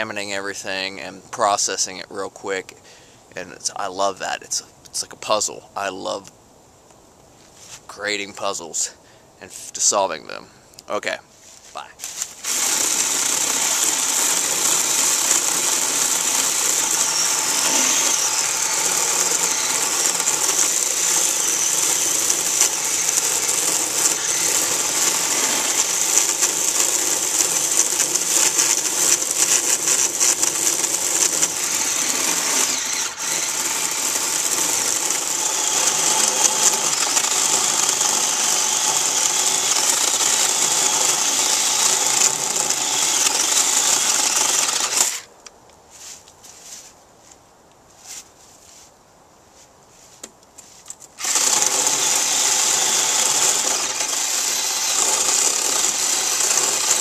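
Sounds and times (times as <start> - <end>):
electric chainsaw cutting wood: 12.4 - 45.3, 51.2 - 57.0.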